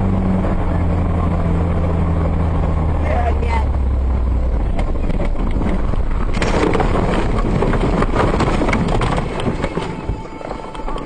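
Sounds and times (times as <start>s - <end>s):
vehicle knocking and rattling: 3.6s - 11.0s.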